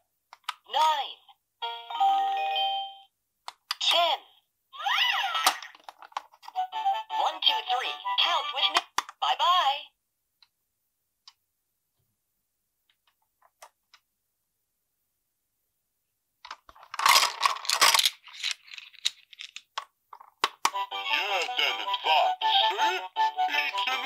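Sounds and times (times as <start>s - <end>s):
plastic pieces clattering: 16.4s - 20.7s
cheerful electronic toy tune: 20.8s - 24.0s
synthetic singing voice: 21.0s - 24.0s.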